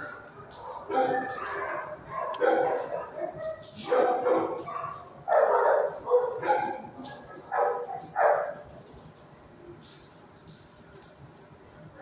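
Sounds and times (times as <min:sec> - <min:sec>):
dogs barking: 0:00.0 - 0:08.8.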